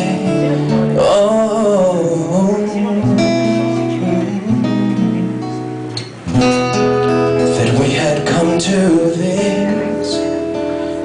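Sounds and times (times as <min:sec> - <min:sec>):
acoustic guitar strumming: 0:00.0 - 0:11.0
man singing wordless run: 0:07.5 - 0:10.3.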